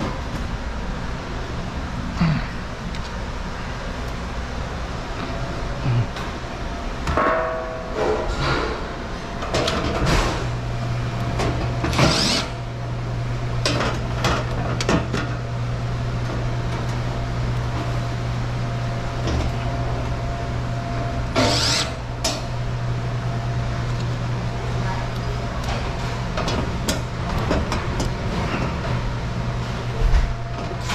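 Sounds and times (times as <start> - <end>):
steady low hum: 0.0 - 30.9
impact driver driving screws: 12.0 - 12.5.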